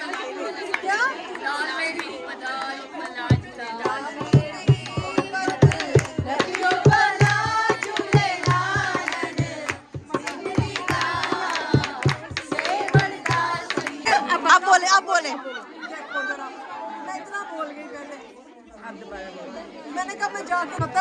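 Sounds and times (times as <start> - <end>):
voices singing: 0.0 - 17.0, 17.9 - 21.0
drum beaten in quick rhythm: 3.3 - 14.1, 20.7 - 21.0.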